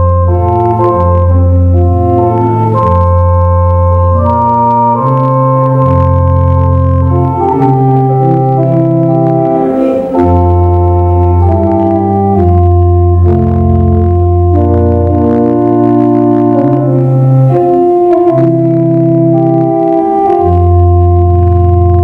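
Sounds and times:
organ playing slow chords: 0.0 - 22.0.

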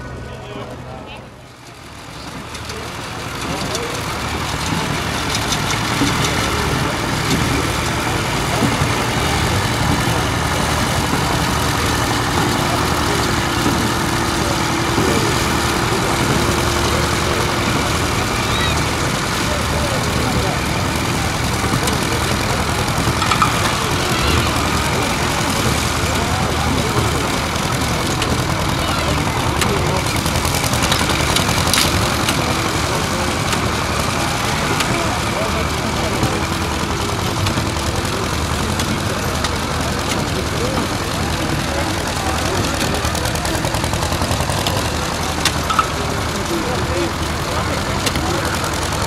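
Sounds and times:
tractor and baler engines running: 0.0 - 49.0
sharp knocks from machinery: 3.4 - 35.2, 45.4 - 46.3.

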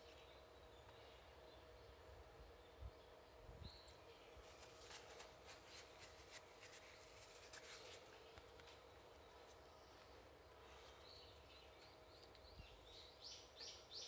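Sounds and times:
cloth rubbing plastic: 4.4 - 8.5.

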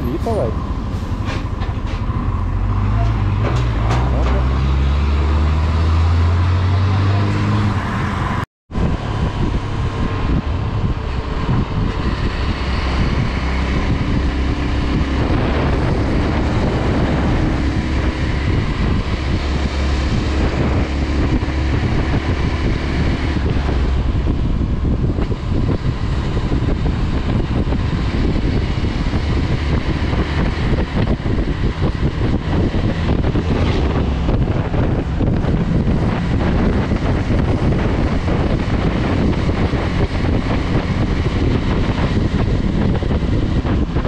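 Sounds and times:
wind on microphone: 0.0 - 44.0.

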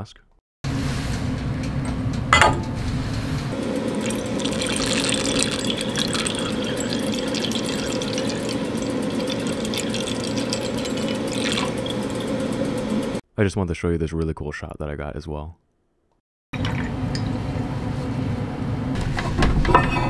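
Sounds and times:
liquid pouring into glass flask: 3.9 - 13.2, 16.6 - 17.3.

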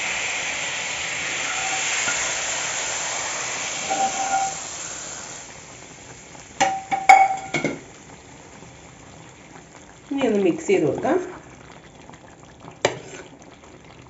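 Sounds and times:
oil sizzling in a frying pan: 0.0 - 14.0
metal clinks against pot: 6.6 - 7.8.

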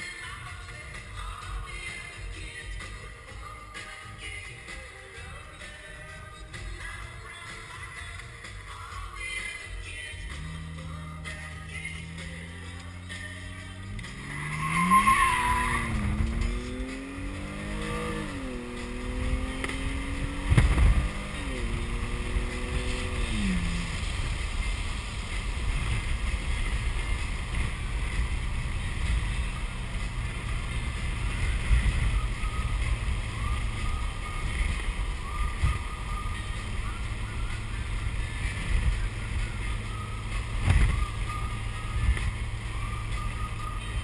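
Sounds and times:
road and tyre noise: 0.0 - 44.0
car engine accelerating: 9.6 - 44.0
tyre squeal: 14.1 - 16.8
sharp thump: 20.4 - 21.0.

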